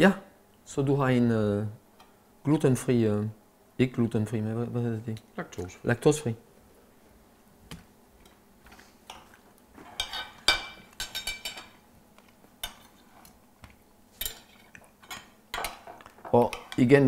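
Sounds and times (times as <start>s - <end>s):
cutlery clinking on plates: 9.1s - 11.8s, 12.6s - 13.4s, 14.2s - 16.8s.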